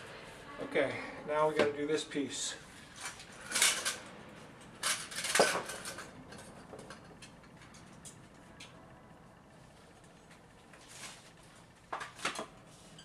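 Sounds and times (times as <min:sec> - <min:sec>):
hard objects clattering: 0:04.8 - 0:07.9.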